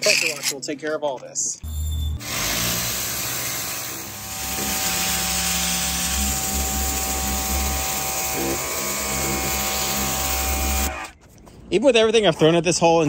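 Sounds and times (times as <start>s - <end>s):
pressure washer motor whine: 2.2s - 10.9s.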